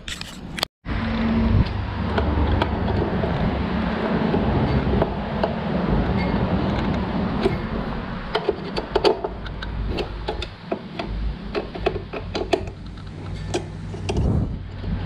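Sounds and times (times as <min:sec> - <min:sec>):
plastic parts clicking: 0:08.3 - 0:14.2.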